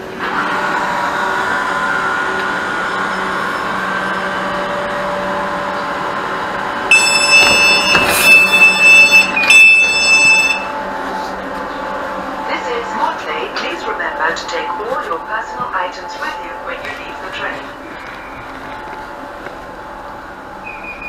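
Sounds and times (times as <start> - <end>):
electric train motor whine: 0.0 - 14.8
high-pitched door warning tone: 6.9 - 10.8.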